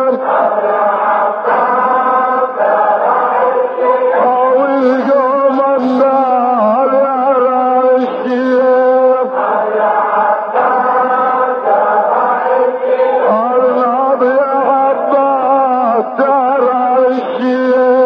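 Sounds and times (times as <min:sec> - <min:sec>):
man chanting a lament: 0:00.0 - 0:00.5, 0:03.8 - 0:09.6, 0:13.0 - 0:18.0.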